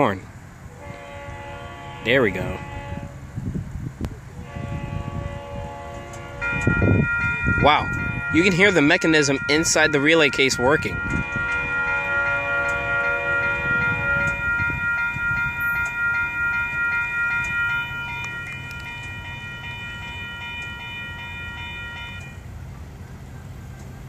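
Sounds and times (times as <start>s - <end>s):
crossing warning bells ringing: 0.0s - 3.4s, 4.4s - 24.0s.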